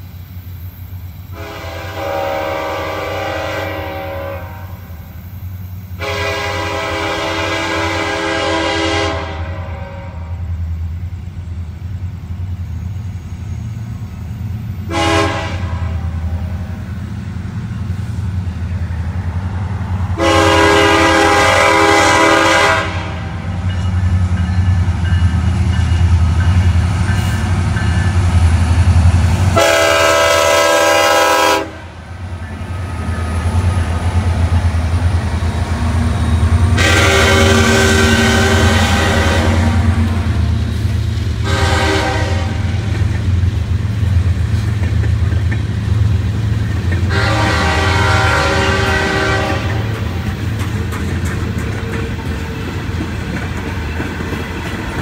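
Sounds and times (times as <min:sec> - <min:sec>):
low rumble of train: 0:00.0 - 0:55.0
locomotive air horn blasts: 0:01.3 - 0:05.0, 0:06.0 - 0:10.5, 0:14.9 - 0:16.8, 0:20.2 - 0:23.6, 0:29.6 - 0:32.0, 0:36.6 - 0:40.4, 0:41.4 - 0:42.9, 0:47.0 - 0:50.0.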